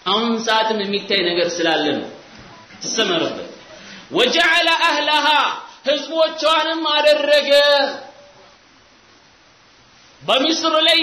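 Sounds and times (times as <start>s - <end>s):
person speaking: 0.0s - 8.6s
faint background hiss: 0.0s - 11.0s.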